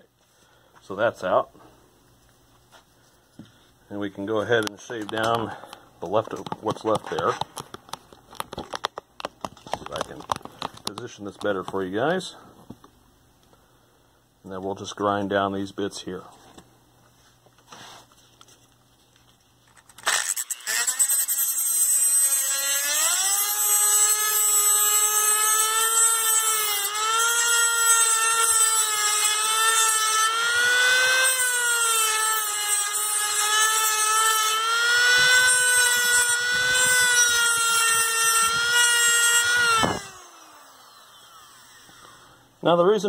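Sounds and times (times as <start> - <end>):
rotary tool grinding metal: 19.8 - 42.4.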